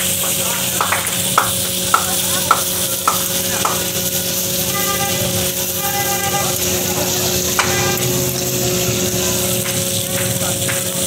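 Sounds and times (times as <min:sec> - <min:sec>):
meat sizzling in a wok: 0:00.0 - 0:11.0.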